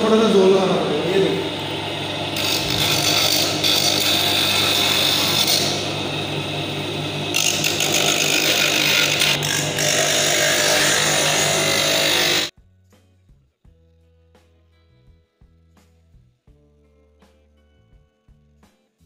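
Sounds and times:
motor hum: 0.0s - 12.5s
stone grinding acrylic: 2.4s - 5.8s, 7.3s - 12.5s.

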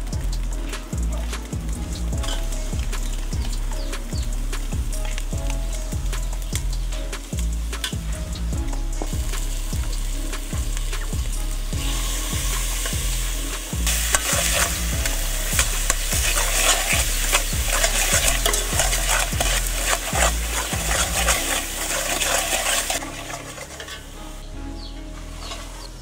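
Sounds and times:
metal ladle scraping pot: 0.6s - 8.0s, 8.7s - 24.5s, 25.2s - 26.0s
paste sizzling in oil: 9.0s - 24.4s.

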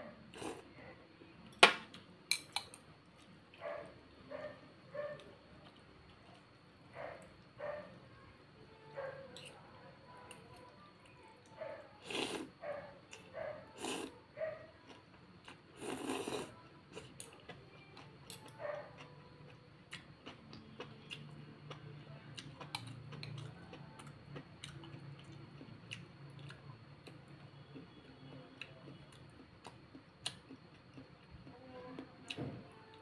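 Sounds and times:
slurping noodles: 12.0s - 12.5s, 15.8s - 16.5s
wet chewing: 22.4s - 31.6s.

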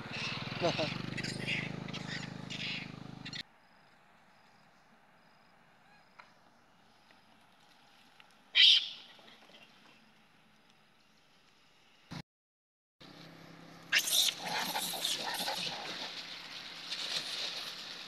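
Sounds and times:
monkey cry: 0.0s - 3.4s, 8.6s - 9.0s, 13.9s - 16.2s.

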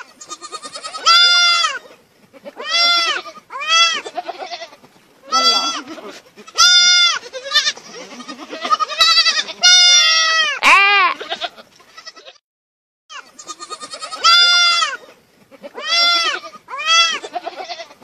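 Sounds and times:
lamb and goat kid bleating: 0.0s - 12.4s, 13.1s - 18.0s.

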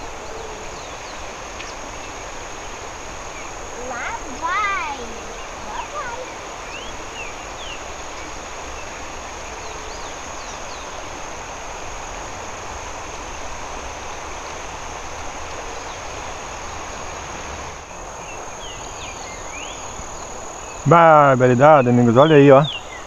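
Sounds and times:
faint bird chirps: 0.0s - 11.1s, 17.9s - 23.0s
even hiss: 0.0s - 23.0s
insects trilling: 0.0s - 23.0s.

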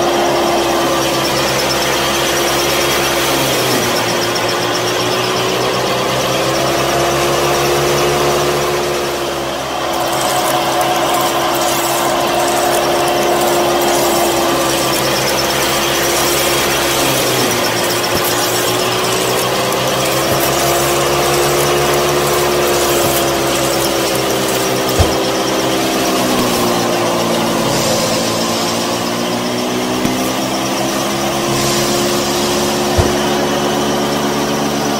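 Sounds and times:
small electric motor whining: 0.0s - 34.9s
short knock: 25.0s - 25.5s, 33.0s - 33.4s.

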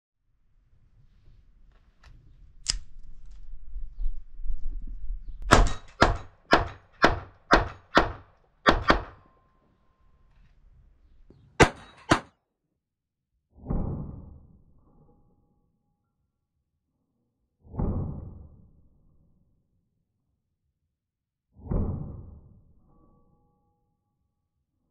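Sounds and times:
pistol loading click: 2.6s - 3.0s
pistol shots: 5.5s - 9.2s, 11.6s - 12.3s.

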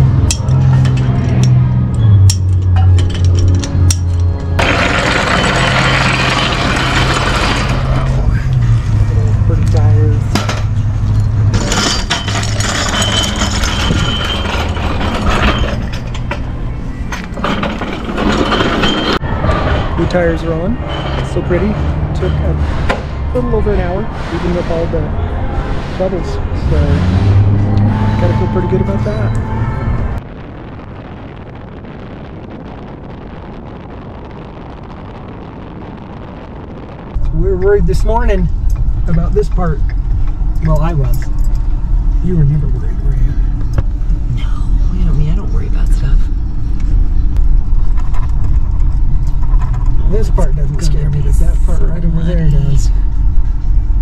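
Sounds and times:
vehicle engine running: 0.0s - 11.8s
road noise: 0.0s - 54.0s
faint high whine: 0.1s - 22.6s, 23.3s - 54.0s
wind buffeting microphone: 19.2s - 54.0s.

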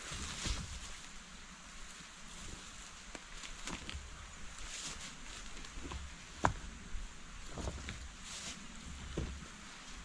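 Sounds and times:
leaves rustling: 0.0s - 10.0s.

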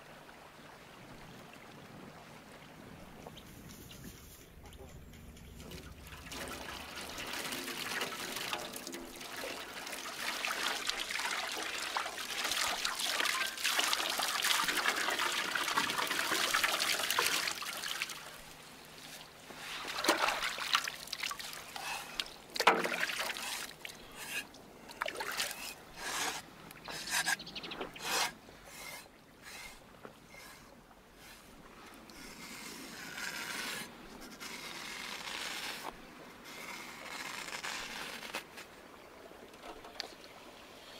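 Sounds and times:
water pouring: 6.0s - 18.3s.

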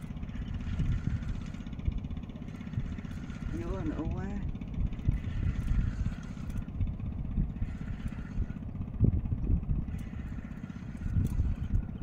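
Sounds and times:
boat engine pulsing: 0.0s - 12.0s.

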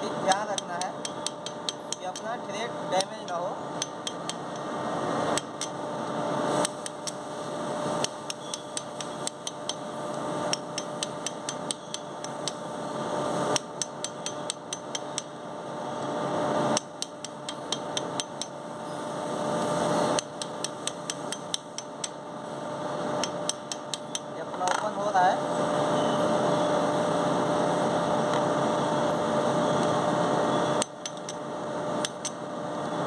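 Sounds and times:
hammer tapping steel pin: 0.3s - 2.4s, 3.0s - 4.7s, 5.3s - 5.8s, 8.0s - 12.6s, 13.5s - 15.3s, 16.8s - 18.6s, 20.2s - 22.2s, 23.2s - 24.9s, 30.8s - 31.4s, 32.0s - 32.4s.

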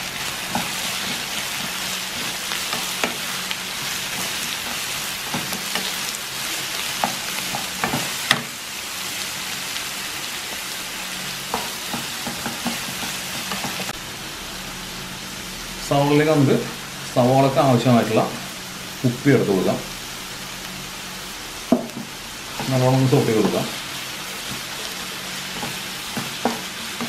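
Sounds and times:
vegetables sizzling in a pan: 0.0s - 27.0s.

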